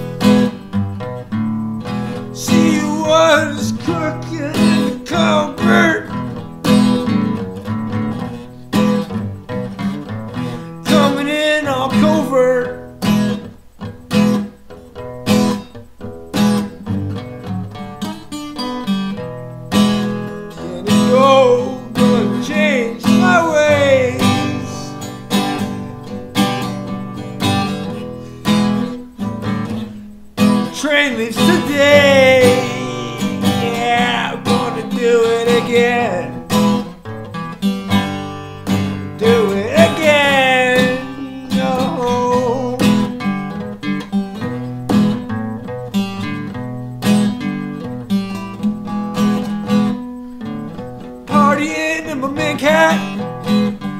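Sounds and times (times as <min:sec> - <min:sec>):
acoustic guitar strumming: 0:00.0 - 0:53.9
man singing: 0:02.3 - 0:06.4, 0:10.8 - 0:12.9, 0:20.3 - 0:25.8, 0:30.6 - 0:36.9, 0:38.6 - 0:43.2, 0:51.3 - 0:53.3.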